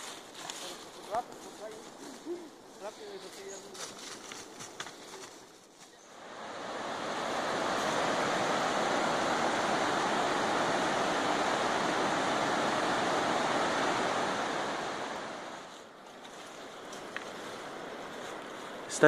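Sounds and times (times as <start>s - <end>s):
waterfall roaring: 6.2s - 15.7s.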